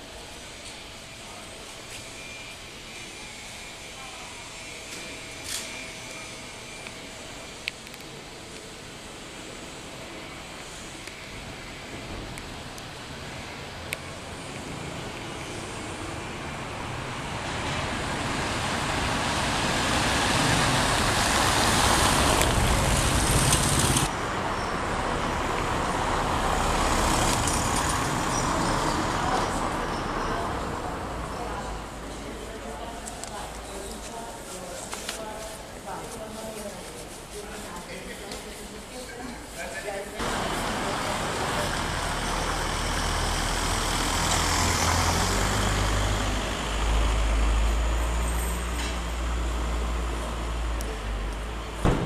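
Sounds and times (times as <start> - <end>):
street traffic noise: 0.0 - 52.0
motor scooter engine: 20.2 - 24.1
car engine passing: 40.2 - 50.7.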